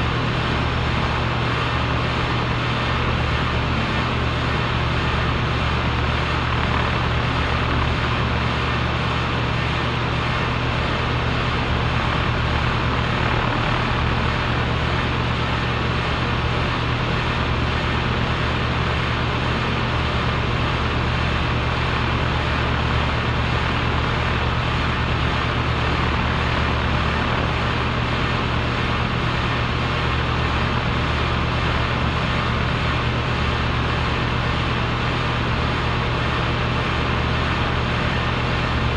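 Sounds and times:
compressor running: 0:00.0 - 0:38.9.

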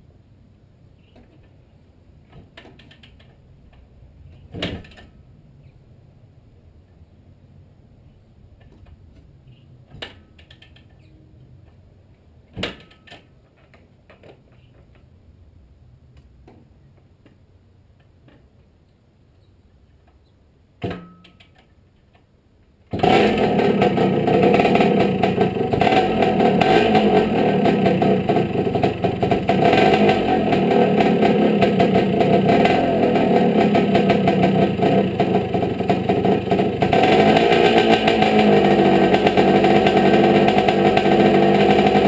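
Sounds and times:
two-stroke motorcycle engine running: 0:23.0 - 0:42.0.

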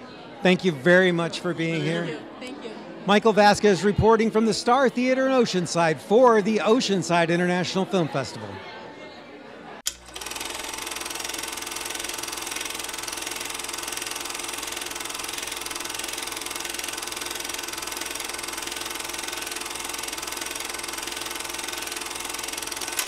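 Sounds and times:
rapid mechanical rattle: 0:09.9 - 0:23.0.

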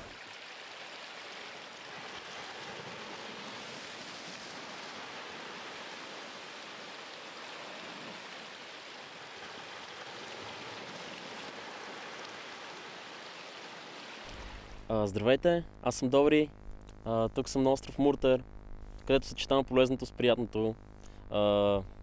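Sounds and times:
small waves washing on rocks: 0:00.0 - 0:14.7
seawater surging through rocks: 0:00.0 - 0:14.8.

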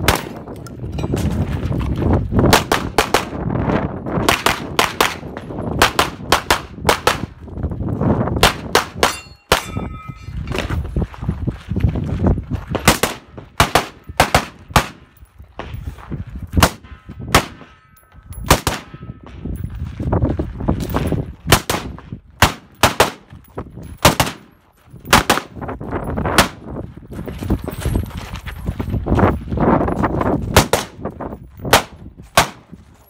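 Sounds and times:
rifle shots: 0:00.0 - 0:00.5, 0:12.8 - 0:15.1, 0:16.6 - 0:17.8, 0:18.5 - 0:19.0, 0:21.5 - 0:23.3, 0:24.0 - 0:24.5, 0:25.1 - 0:25.6, 0:31.7 - 0:32.6.

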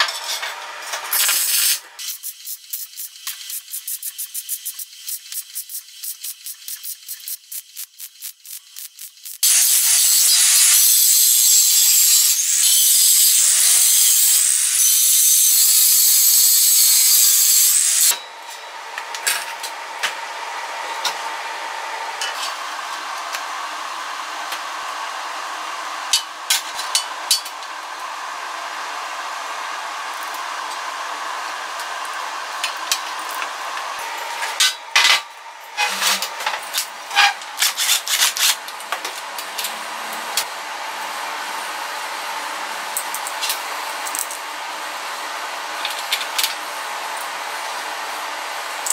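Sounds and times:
angle grinder grinding steel: 0:04.8 - 0:22.6, 0:32.6 - 0:38.6.

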